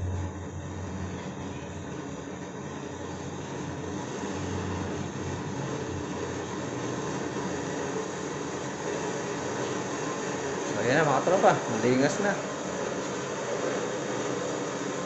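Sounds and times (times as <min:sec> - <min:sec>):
low hum: 0:00.0 - 0:03.2
stove burner rushing hiss: 0:00.0 - 0:15.0.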